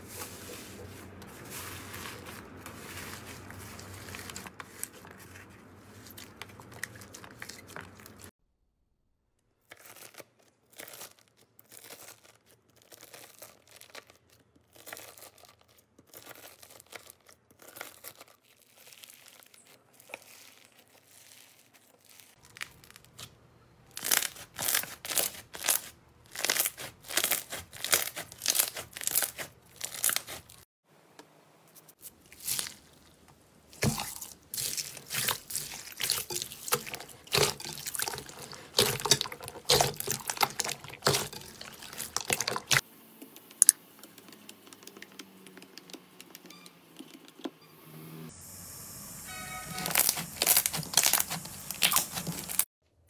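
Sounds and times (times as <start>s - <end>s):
bead slime crunching and popping: 9.6s - 23.3s, 23.9s - 30.6s, 33.7s - 42.8s, 49.7s - 52.6s.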